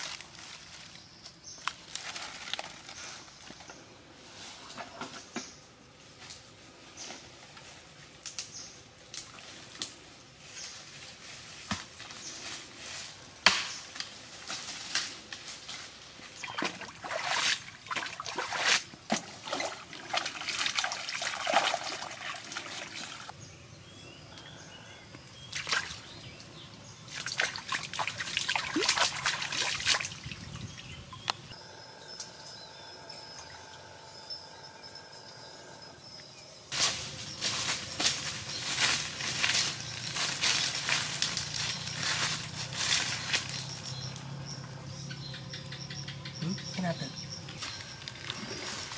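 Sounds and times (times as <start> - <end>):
muddy water splashing: 16.4 - 23.3, 25.5 - 26.1, 27.1 - 30.8.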